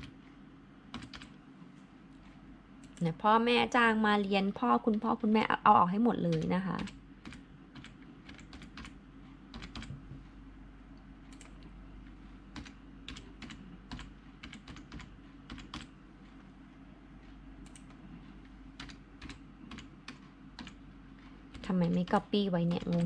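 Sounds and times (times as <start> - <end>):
computer keyboard typing: 0.9 - 1.4, 6.2 - 10.0, 12.5 - 15.9, 17.6 - 18.0, 18.8 - 20.8, 21.5 - 23.0.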